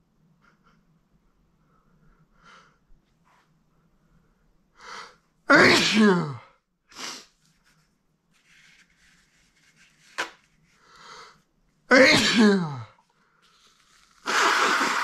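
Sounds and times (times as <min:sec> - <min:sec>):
man sneezing: 0:05.5 - 0:06.4, 0:11.9 - 0:12.9.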